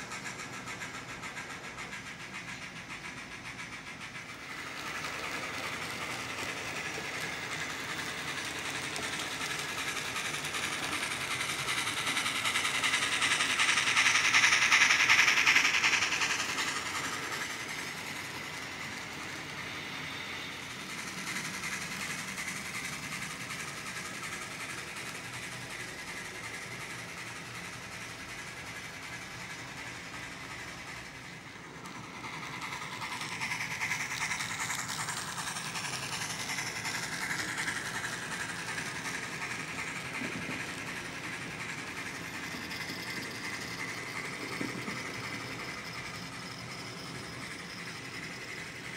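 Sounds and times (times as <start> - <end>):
model train motors whirring: 0.0 - 48.9
wheels rolling over track: 28.5 - 48.9.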